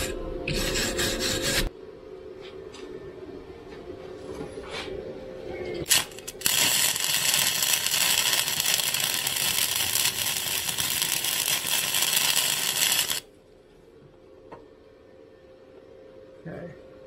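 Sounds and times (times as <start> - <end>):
arc welder crackling hiss: 5.9 - 13.3.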